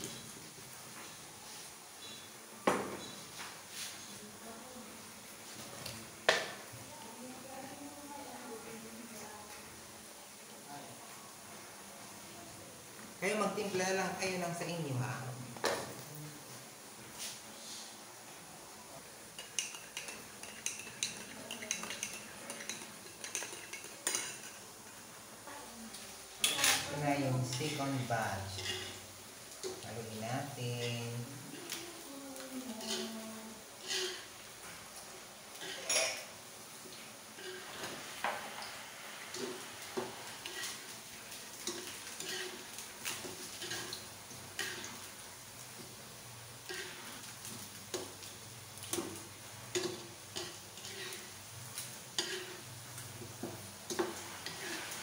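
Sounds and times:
banana slices sizzling in oil: 0.0s - 55.0s
metal spatula scraping a wok: 27.5s - 29.0s, 33.8s - 34.3s, 37.4s - 38.1s, 39.3s - 40.9s, 41.6s - 45.0s, 46.6s - 47.2s, 49.7s - 51.4s, 52.2s - 52.7s, 53.9s - 55.0s.

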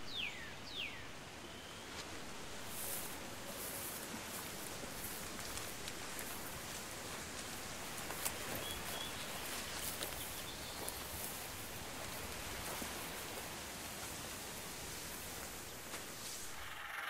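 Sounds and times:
faint steady hiss: 0.0s - 17.0s
soft crackles and ticks: 2.7s - 16.3s.

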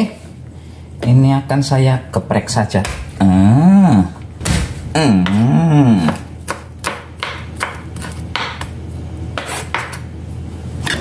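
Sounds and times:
person humming: 3.2s - 4.3s, 4.9s - 6.3s
knife chopping on wooden board: 6.1s - 8.7s.

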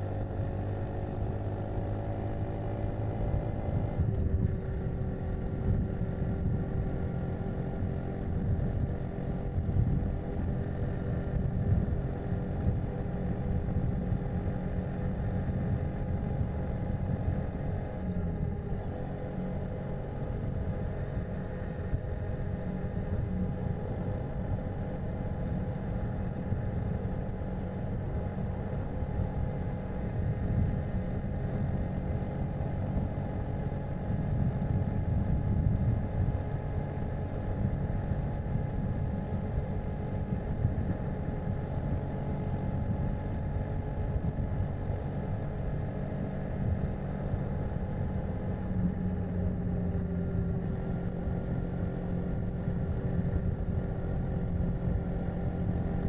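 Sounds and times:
motorcycle engine running: 0.0s - 56.0s
road noise rumble: 0.0s - 56.0s.

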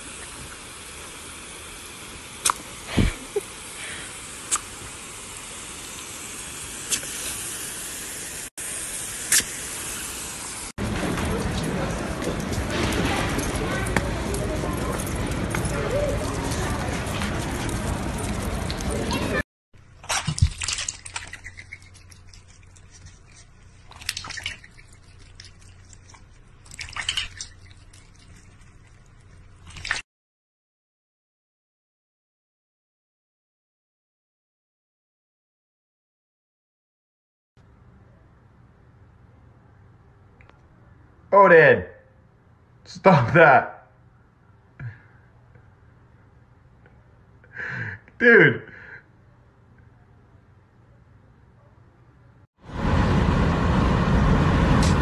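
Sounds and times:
water hissing from hose nozzle: 0.0s - 10.8s
water splashing in metal bowl: 19.8s - 30.0s.

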